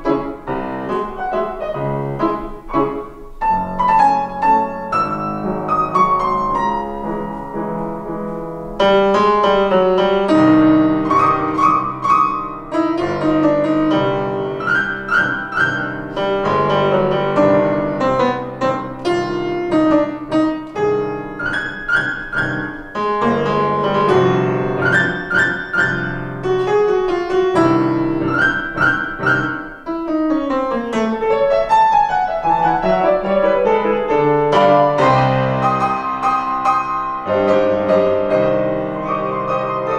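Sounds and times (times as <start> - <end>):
grand piano duet: 0.0 - 39.9.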